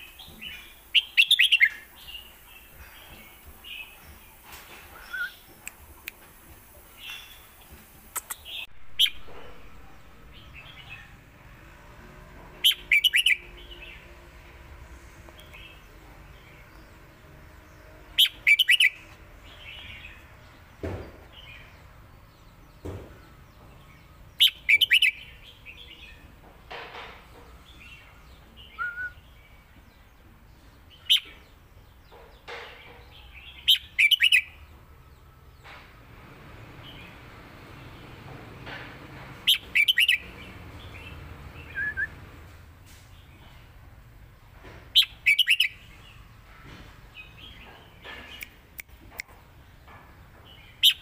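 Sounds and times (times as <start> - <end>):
soft bird chirps: 0.0 - 6.2
bird singing whistled phrases: 5.0 - 5.5, 28.7 - 29.2, 41.7 - 42.2.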